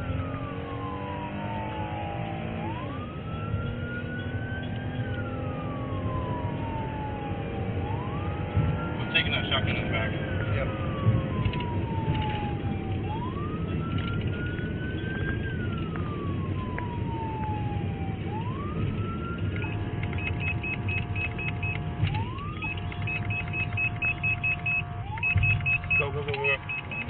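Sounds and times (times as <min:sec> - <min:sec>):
road and engine noise: 0:00.0 - 0:27.0
siren wailing: 0:00.0 - 0:27.0
rapid high beeps: 0:22.6 - 0:27.0.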